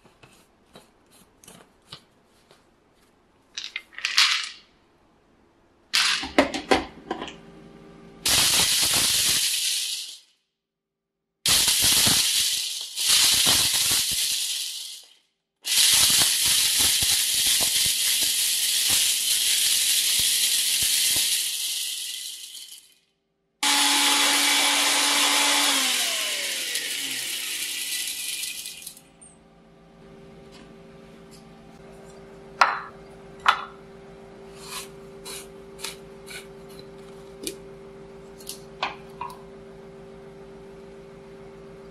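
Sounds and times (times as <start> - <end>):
blender grinding: 11.6 - 15.1, 15.7 - 23.0, 23.6 - 29.0
seeds rattling in plastic cup: 12.2 - 15.1, 15.7 - 22.9
motor winding down whine: 23.6 - 29.0.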